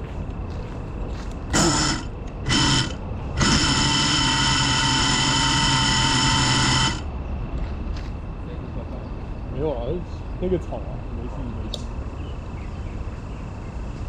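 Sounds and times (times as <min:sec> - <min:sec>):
drone motors spinning up: 0:01.5 - 0:07.1.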